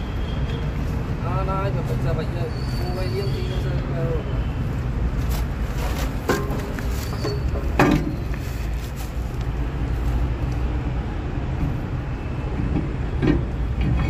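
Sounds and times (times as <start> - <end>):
metal brake drum knock: 6.3 - 6.8.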